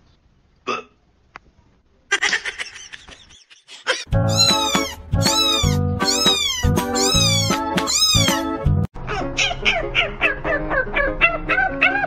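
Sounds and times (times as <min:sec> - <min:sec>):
background music: 0:04.1 - 0:12.0
kitten meowing: 0:04.3 - 0:08.5.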